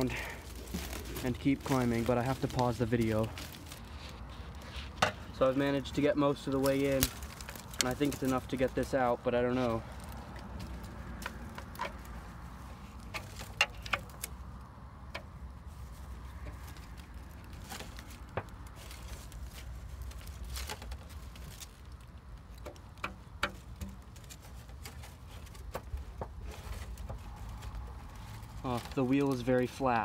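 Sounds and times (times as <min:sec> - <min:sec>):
bramble stems crackling: 0:00.0 - 0:30.0.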